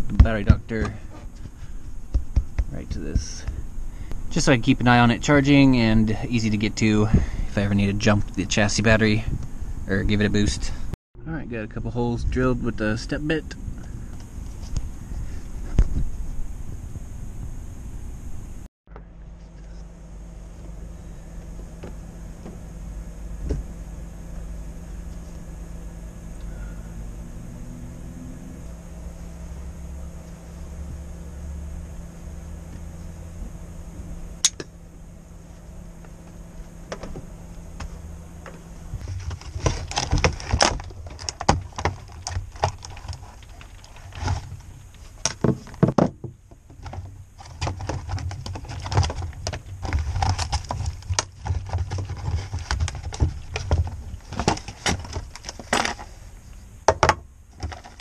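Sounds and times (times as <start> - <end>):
low hum: 0.0 - 45.7.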